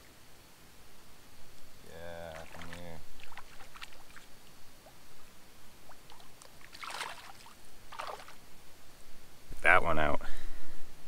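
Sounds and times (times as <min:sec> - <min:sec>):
fish splashing at surface: 0:02.3 - 0:04.3, 0:05.9 - 0:08.4.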